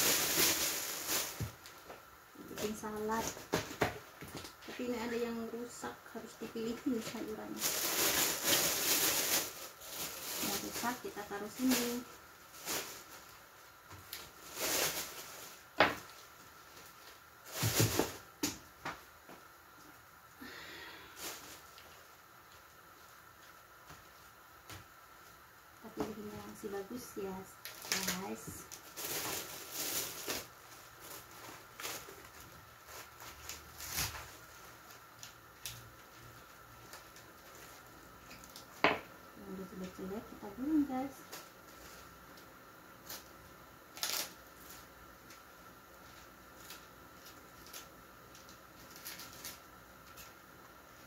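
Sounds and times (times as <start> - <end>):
plastic bag rustling: 0.0 - 18.4, 20.4 - 24.3, 25.8 - 42.4, 43.0 - 50.4
lettuce leaves handled: 7.0 - 13.2, 27.7 - 34.4.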